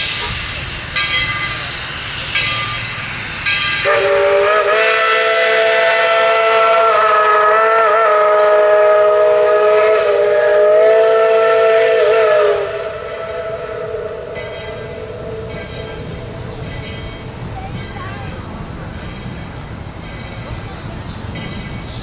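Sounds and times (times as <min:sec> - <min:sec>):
steam whistle blast: 0:03.8 - 0:15.5.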